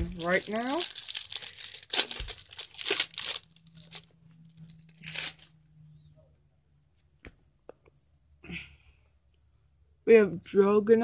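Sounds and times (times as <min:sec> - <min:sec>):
packaging tearing and crinkling: 0:00.0 - 0:05.5.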